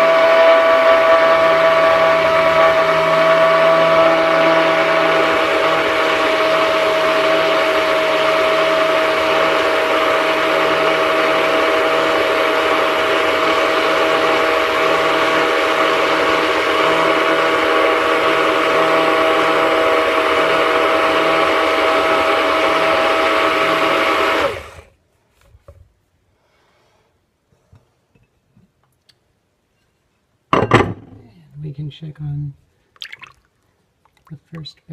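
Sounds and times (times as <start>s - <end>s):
stick blender whining: 0.0s - 24.9s.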